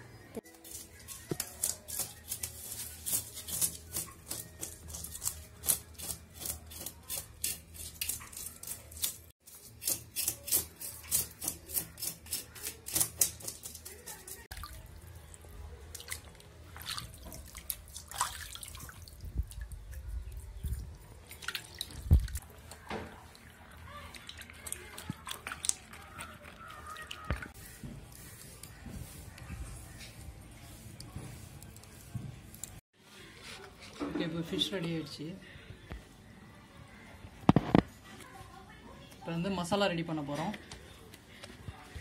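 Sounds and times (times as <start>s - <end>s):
knife scraping fish scales: 0.6s - 14.5s
water splashing in a basin: 14.5s - 20.4s, 21.0s - 27.6s.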